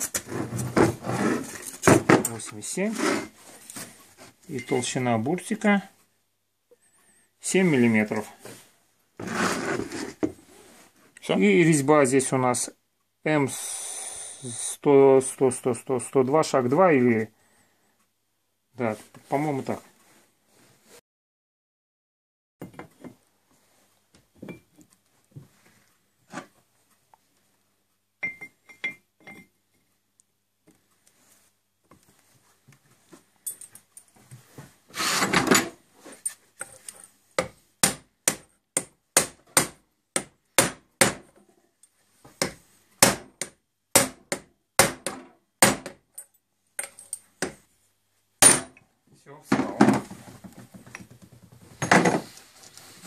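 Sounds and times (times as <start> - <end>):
light clinks of metal parts: 33.4 - 34.2, 46.1 - 47.3.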